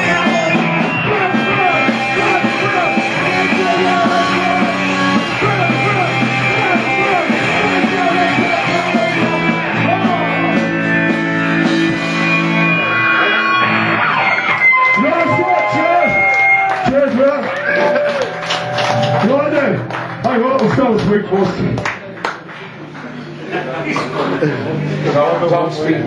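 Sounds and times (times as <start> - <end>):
electric guitar chords: 0.0 - 16.9, 17.6 - 21.2
punk band playing loud rock: 0.0 - 21.2.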